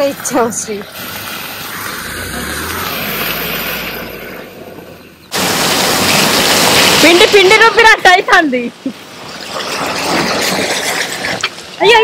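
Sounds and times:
loud steady hiss: 0:00.0 - 0:09.2.

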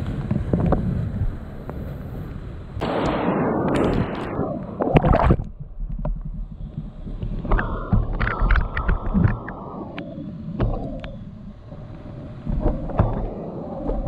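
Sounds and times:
muffled underwater rumble: 0:00.0 - 0:14.0
rushing splashing water: 0:03.6 - 0:11.1
splash into water: 0:04.8 - 0:05.6.

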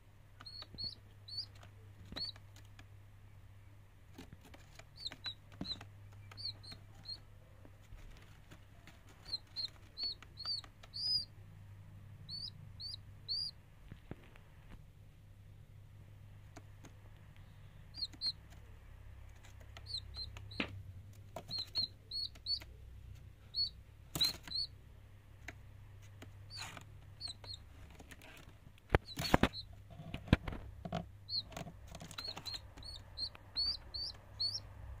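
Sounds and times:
faint low hum: 0:00.0 - 0:35.0
chick peeping: 0:00.4 - 0:02.9, 0:04.1 - 0:14.4, 0:16.5 - 0:35.0.

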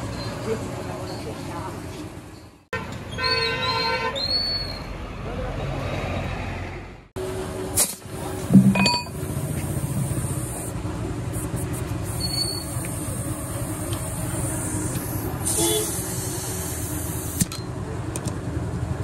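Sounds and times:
diesel engine running: 0:07.2 - 0:19.0.

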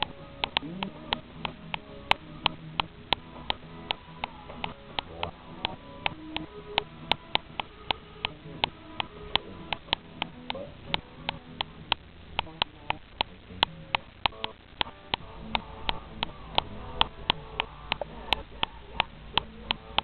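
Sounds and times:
faint chopped-up background sound: 0:00.0 - 0:20.0
sharp clicks: 0:00.0 - 0:20.0.

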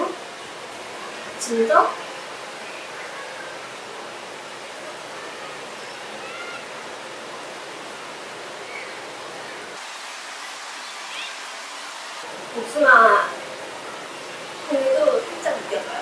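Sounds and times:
wind hissing: 0:00.0 - 0:16.0
faint high chirps: 0:08.6 - 0:09.6.

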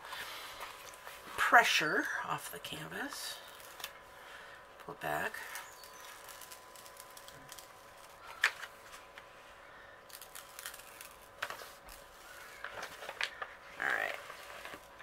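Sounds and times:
plastic sheet peeling crinkles: 0:03.4 - 0:04.0, 0:05.4 - 0:09.4, 0:10.1 - 0:15.0.

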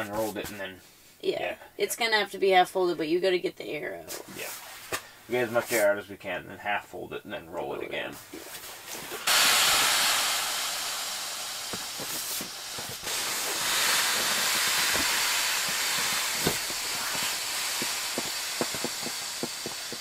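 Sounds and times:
mat clicks and rustles: 0:07.6 - 0:09.3, 0:11.6 - 0:20.0
air hissing out of valve: 0:09.1 - 0:20.0.

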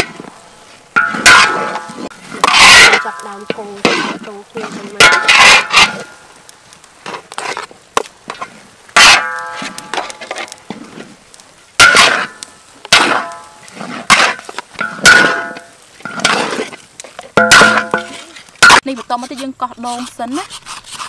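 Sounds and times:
metal spatula clanging on wok: 0:01.0 - 0:04.0, 0:05.0 - 0:06.0, 0:09.0 - 0:10.0, 0:14.1 - 0:16.3, 0:17.4 - 0:18.2.

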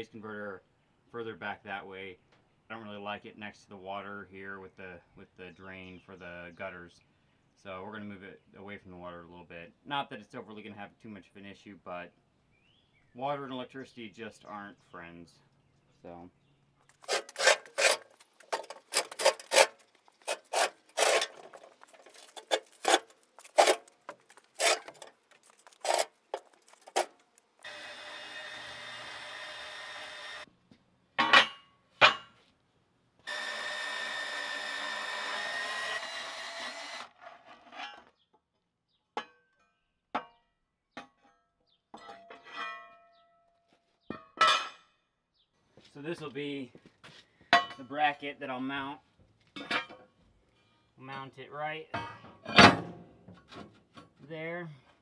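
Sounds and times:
sharp scraping strokes: 0:16.9 - 0:27.2
band saw cutting steel: 0:17.0 - 0:30.5, 0:33.3 - 0:37.2.

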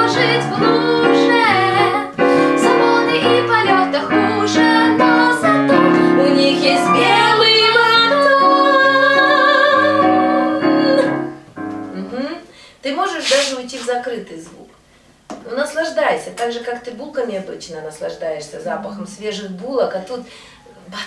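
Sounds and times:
woman singing: 0:00.0 - 0:11.3
digital piano chords: 0:00.0 - 0:12.3.

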